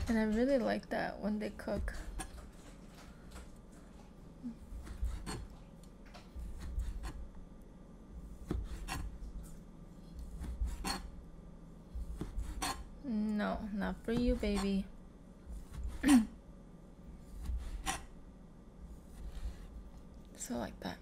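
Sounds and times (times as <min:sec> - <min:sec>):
knife slicing through meat: 0:08.3 - 0:09.2.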